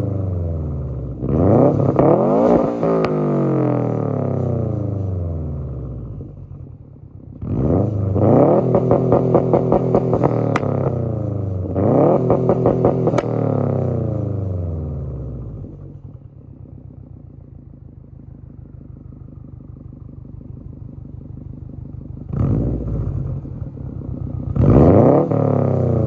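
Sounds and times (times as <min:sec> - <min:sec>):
car engine revving: 0:00.0 - 0:06.7, 0:07.3 - 0:16.2, 0:17.8 - 0:26.0
exhaust crack: 0:00.8 - 0:14.5, 0:15.4 - 0:26.0
deep engine idle rumble: 0:14.2 - 0:24.6.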